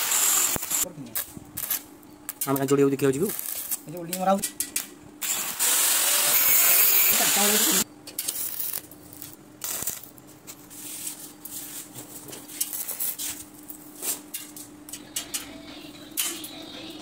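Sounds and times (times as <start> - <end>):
welding crackles: 0.0 - 4.4, 5.2 - 11.1, 12.6 - 13.5
welding hum: 0.0 - 11.9, 12.5 - 17.0.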